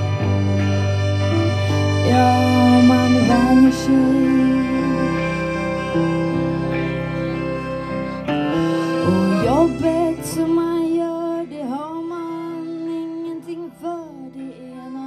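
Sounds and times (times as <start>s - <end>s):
accordion: 0.0s - 15.0s
guitar: 0.0s - 15.0s
woman singing: 1.9s - 6.0s, 9.0s - 15.0s.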